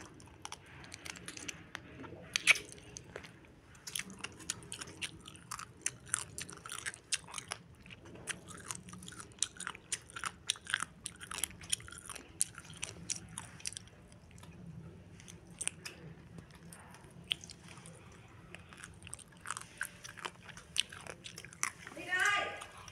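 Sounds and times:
crunchy chewing: 0:00.0 - 0:22.9.

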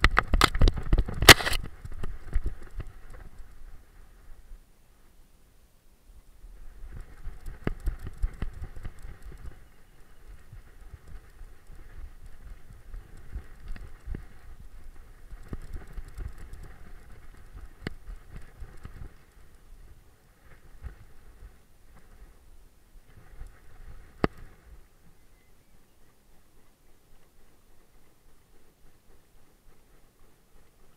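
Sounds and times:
grass rustling: 0:00.0 - 0:30.9.

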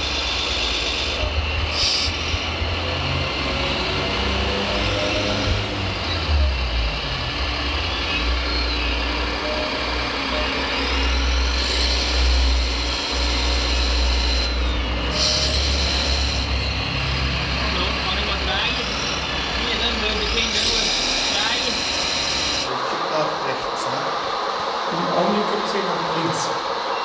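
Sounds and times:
high whine: 0:00.0 - 0:27.0
simulated diesel engine sound: 0:00.0 - 0:27.0.

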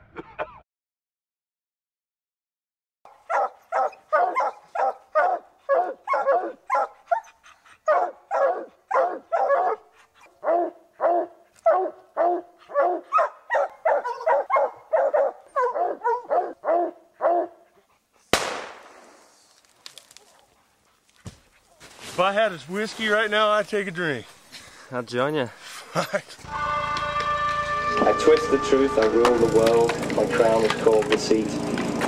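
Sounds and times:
hound barking: 0:03.1 - 0:17.8
sharp loud bang: 0:18.4 - 0:19.2.

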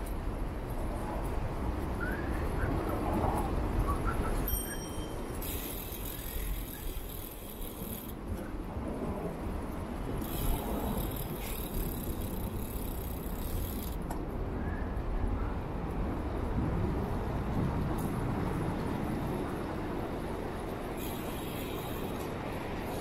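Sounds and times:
bicycle rattling: 0:00.0 - 0:14.3, 0:17.9 - 0:23.0
bicycle riding rumble: 0:00.0 - 0:23.0.

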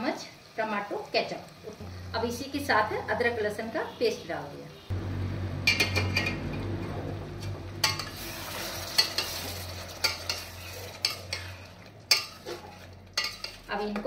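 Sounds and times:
low sizzle of frying: 0:00.0 - 0:14.0
spatula scraping a steel pot: 0:07.8 - 0:14.0.

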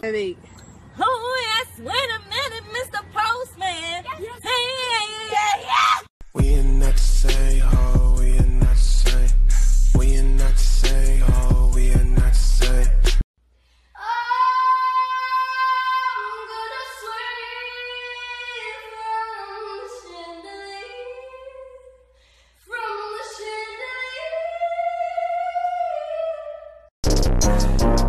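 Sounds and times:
woman singing wordless high notes: 0:14.0 - 0:22.0.

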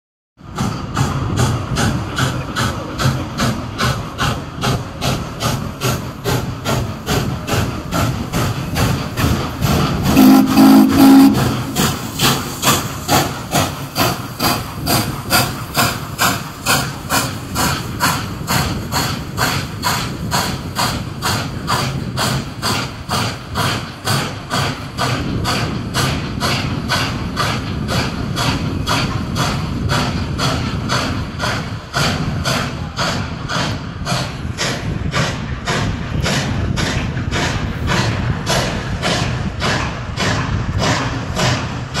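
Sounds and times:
steam locomotive chuffing: 0:00.4 - 0:42.0
steam whistle: 0:10.1 - 0:11.8.

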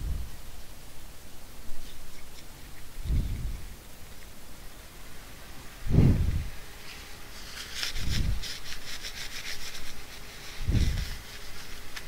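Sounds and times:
dull low thumps: 0:05.8 - 0:06.6.

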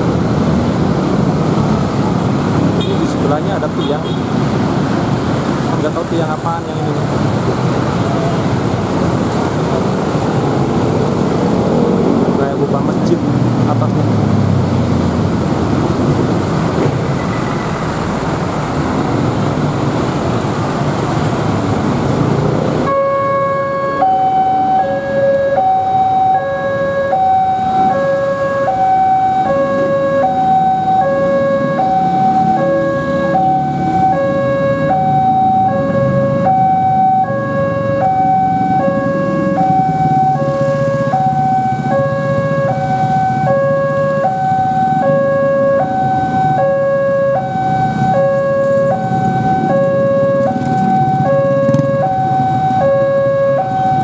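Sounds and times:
road traffic: 0:00.0 - 0:54.0
level crossing alarm bell: 0:22.9 - 0:54.0.

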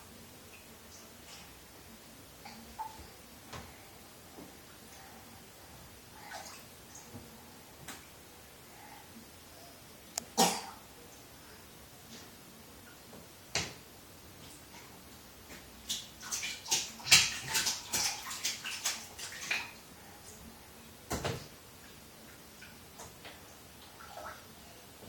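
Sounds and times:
water splashing in a bathtub: 0:00.4 - 0:05.3, 0:06.0 - 0:08.2, 0:12.9 - 0:25.0.

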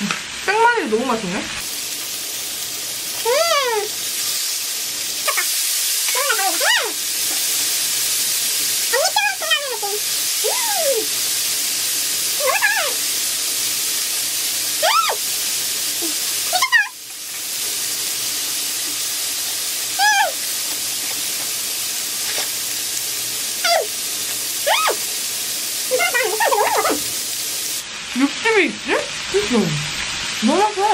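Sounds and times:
meat sizzling on a grill: 0:00.0 - 0:30.9
dog whimpering: 0:14.8 - 0:15.2, 0:26.0 - 0:27.0.

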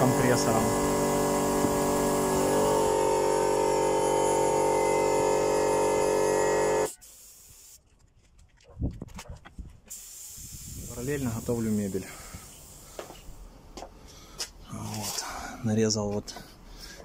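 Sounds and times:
paint sprayer motor hum: 0:00.0 - 0:07.8
hiss of paint spraying: 0:06.6 - 0:07.8, 0:09.9 - 0:13.4.

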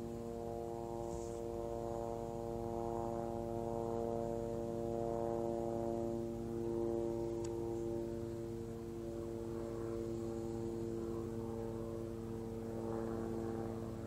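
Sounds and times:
steady hum with overtones: 0:00.0 - 0:14.0.

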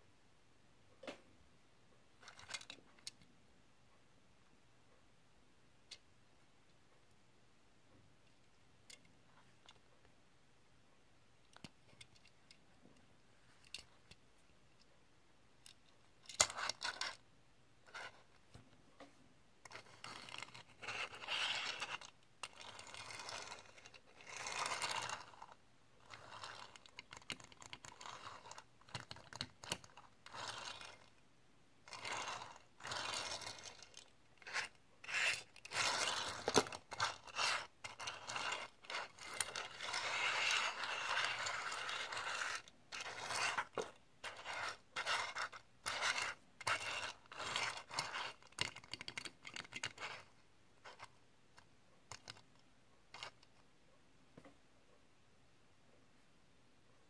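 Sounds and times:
toy car wheels scraping tabletop: 0:16.4 - 0:17.2, 0:17.8 - 0:18.3, 0:19.6 - 0:31.1, 0:31.8 - 0:51.1, 0:53.1 - 0:53.5.

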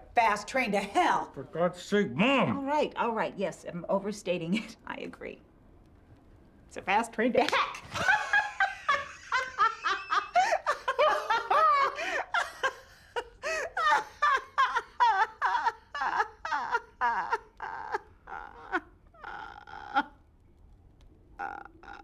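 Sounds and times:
man and woman laughing: 0:07.8 - 0:20.1.

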